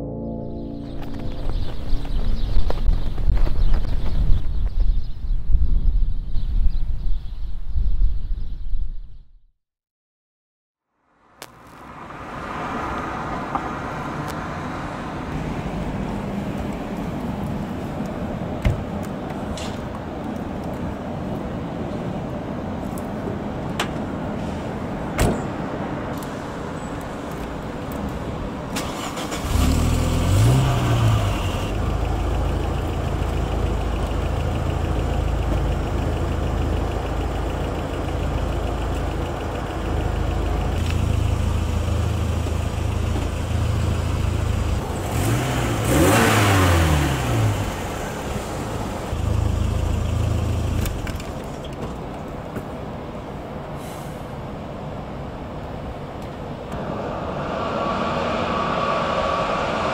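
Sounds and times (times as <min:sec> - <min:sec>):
car engine starting and idling: 0:23.5 - 0:55.0.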